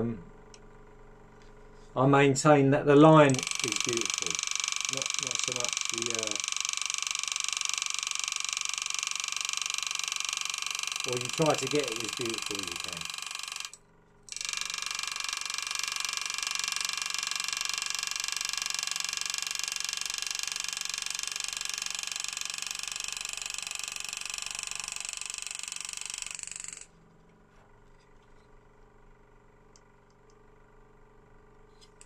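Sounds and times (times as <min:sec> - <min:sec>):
engraving tool buzzing: 0:03.0 - 0:27.0.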